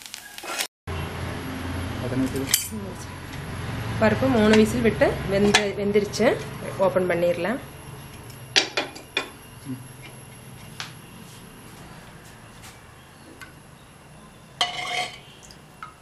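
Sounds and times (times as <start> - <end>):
ladle clinking on metal cookware: 14.6 - 15.4.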